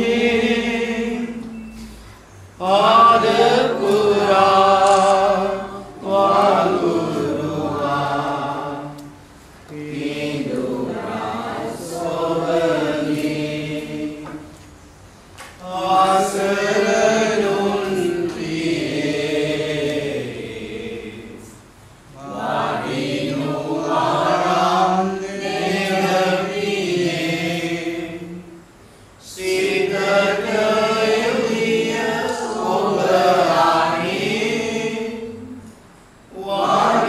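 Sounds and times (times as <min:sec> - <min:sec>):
group singing a slow hymn: 0:00.0 - 0:37.0
singers breathing: 0:28.8 - 0:29.2.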